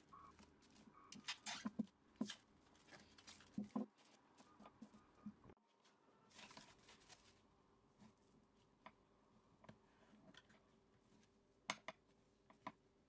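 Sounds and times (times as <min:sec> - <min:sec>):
cling film rustling: 0:00.0 - 0:05.0, 0:06.3 - 0:07.5.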